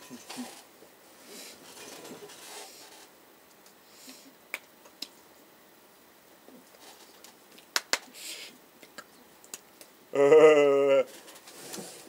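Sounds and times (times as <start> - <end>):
short breathy hiss: 8.0 - 8.6.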